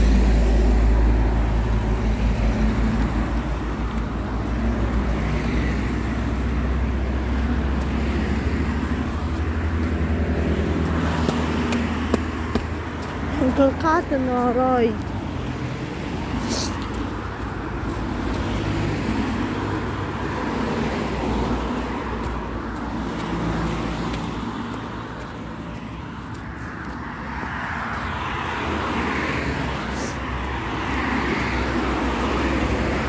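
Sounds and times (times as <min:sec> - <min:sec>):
cars passing on street: 0:00.0 - 0:33.0.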